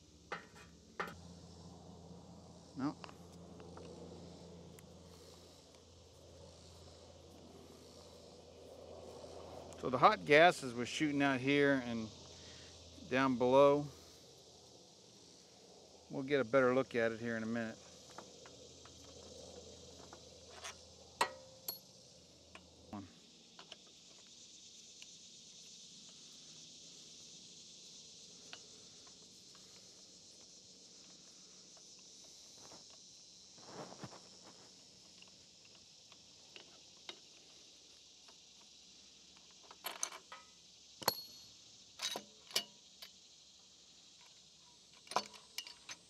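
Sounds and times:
insects chirring: 0.0s - 46.0s
ratchet metallic clinks: 41.0s - 42.8s.

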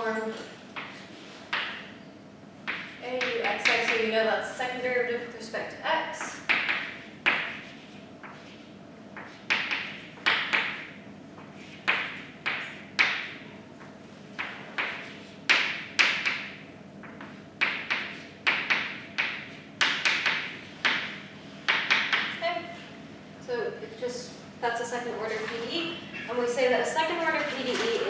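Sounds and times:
chalk writing on blackboard: 6.5s - 10.8s, 11.4s - 12.7s, 14.4s - 16.4s.

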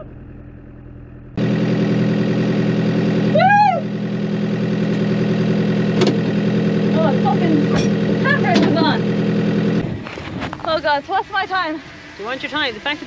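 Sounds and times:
tractor diesel engine idling: 0.0s - 10.0s, 10.7s - 13.0s
person cheering: 3.3s - 3.9s.

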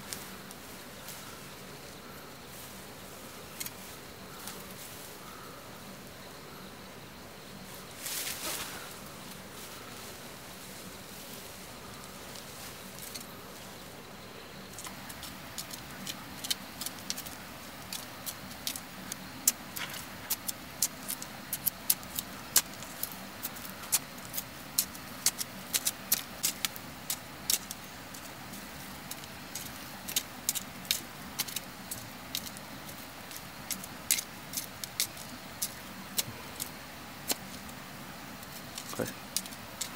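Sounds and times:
knife scraping stony soil: 14.8s - 37.8s, 38.4s - 39.9s.

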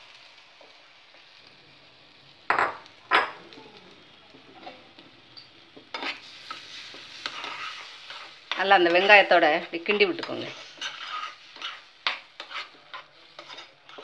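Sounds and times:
eggs sizzling in a pan: 0.0s - 14.0s
spoon stirring and scraping pan: 4.0s - 14.0s.

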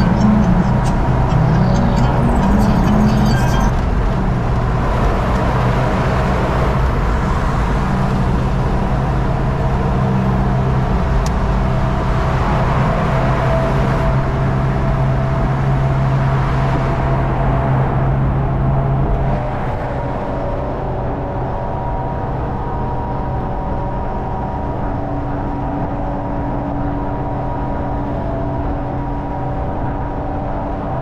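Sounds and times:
loud wind noise: 0.0s - 31.0s
low engine drone: 0.0s - 31.0s
road noise: 0.0s - 31.0s.

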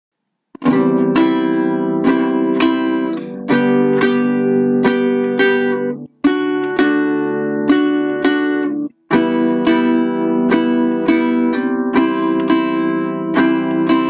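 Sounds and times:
strummed guitar chords: 0.6s - 14.0s.

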